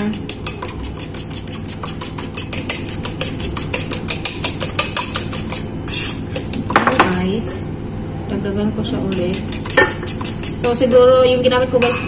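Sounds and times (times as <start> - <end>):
utensil clinking against bowl: 0.0 - 7.3, 9.0 - 10.9, 11.7 - 12.0.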